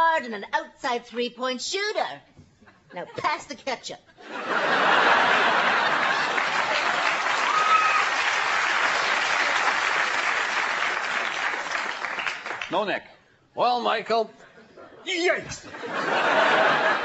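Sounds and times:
studio audience applauding: 5.1 - 12.8.

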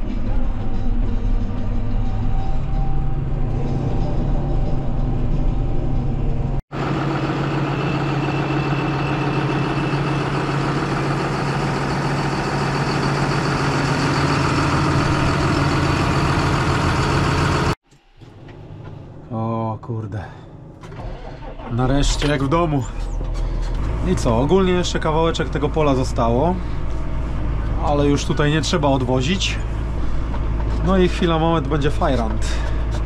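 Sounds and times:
diesel engine running: 0.0 - 19.3, 20.5 - 33.0
engine drone with hiss: 6.8 - 17.8, 22.9 - 33.0.

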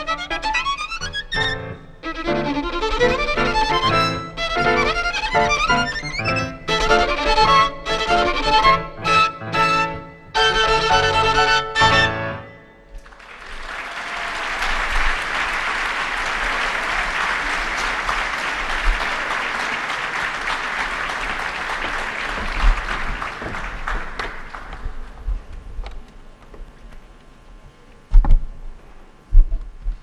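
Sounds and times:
violin note: 0.0 - 12.8
audience applauding: 13.0 - 25.3.

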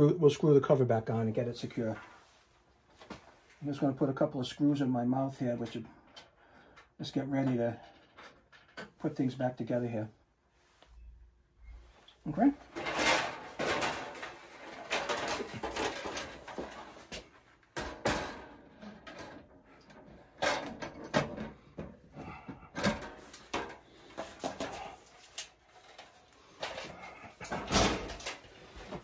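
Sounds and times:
sheet metal panel cover rattling: 12.7 - 17.1, 20.2 - 29.0.

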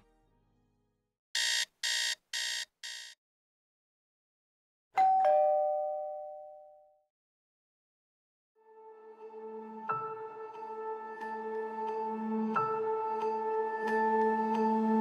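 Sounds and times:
doorbell ding-dong chime: 5.0 - 7.0.

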